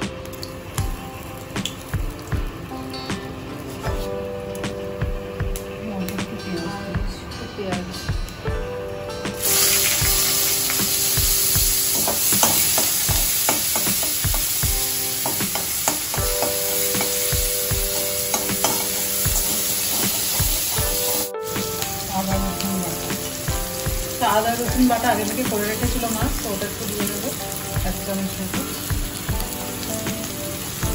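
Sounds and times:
oil sizzling in a frying pan: 0.0s - 5.8s, 9.3s - 30.9s
spatula scraping a pan: 18.3s - 21.3s.

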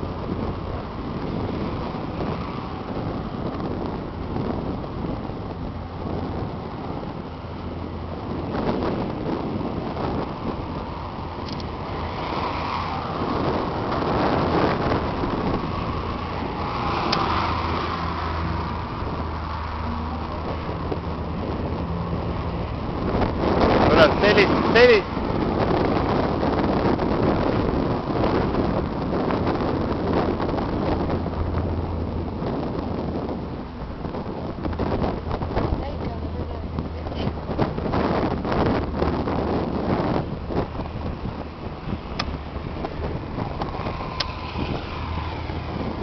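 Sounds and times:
rushing noise: 0.0s - 35.6s
engine drone: 0.0s - 46.0s
wind buffeting microphone: 0.0s - 46.0s.

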